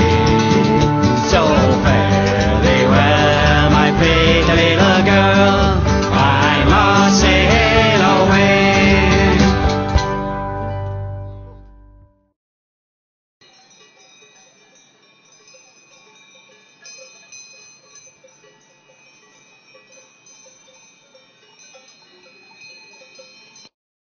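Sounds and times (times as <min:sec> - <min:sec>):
small bells ringing: 0:00.0 - 0:10.3, 0:13.4 - 0:23.8.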